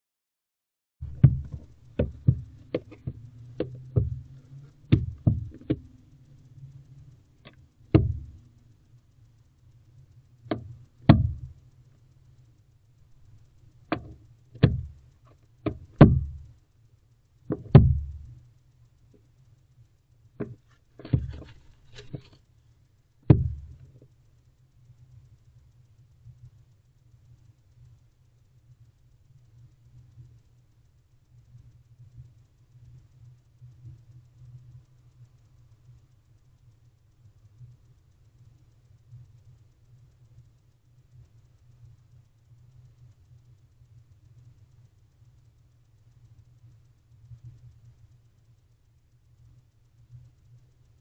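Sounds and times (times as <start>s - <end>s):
owl stomping feet on wood: 1.0s - 6.0s, 7.4s - 8.5s, 10.5s - 11.6s, 13.9s - 16.5s, 17.5s - 18.4s, 20.4s - 22.4s, 23.3s - 24.0s
low steady hum: 1.0s - 51.0s.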